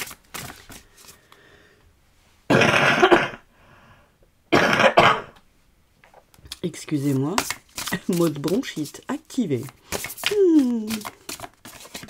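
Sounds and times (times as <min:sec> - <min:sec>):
woman coughing: 0:02.5 - 0:03.4, 0:04.5 - 0:05.4.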